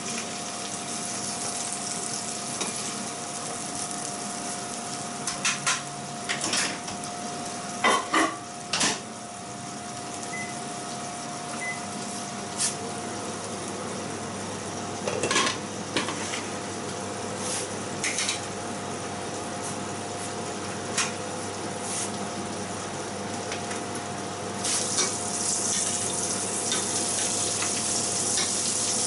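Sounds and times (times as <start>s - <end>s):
prawns sizzling in a frying pan: 0.0s - 8.9s, 24.5s - 29.0s.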